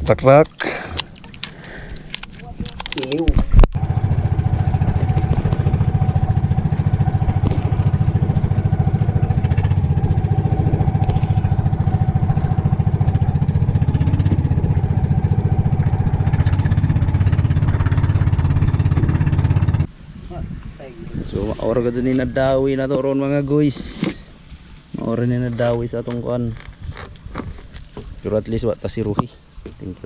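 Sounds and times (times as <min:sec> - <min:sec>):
boat engine chugging: 0:03.8 - 0:19.9.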